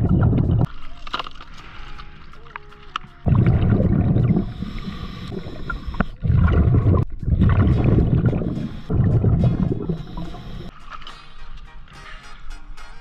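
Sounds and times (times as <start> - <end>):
underwater exhaled bubbles: 0.0 - 0.7, 3.3 - 10.7
regulator inhale hiss: 4.3 - 6.2, 8.5 - 9.0, 9.8 - 11.6.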